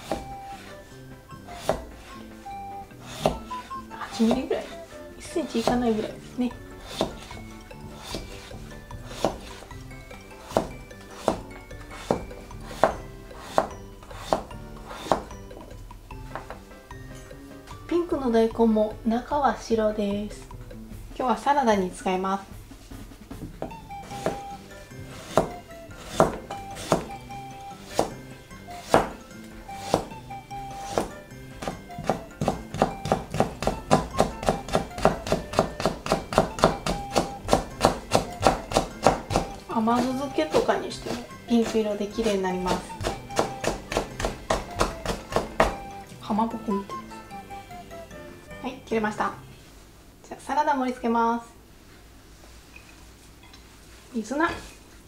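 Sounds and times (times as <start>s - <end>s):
knife chopping on cutting board: 0.0s - 0.8s, 1.5s - 2.2s, 3.0s - 15.4s, 23.6s - 46.0s
light background music: 0.0s - 51.7s, 53.5s - 55.0s.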